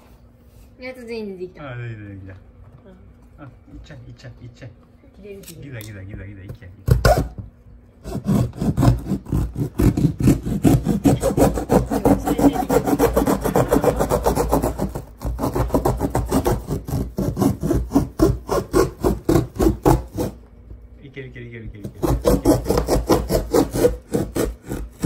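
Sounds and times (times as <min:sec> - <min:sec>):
hand scratching cardboard box: 0:08.0 - 0:20.4, 0:21.8 - 0:25.0.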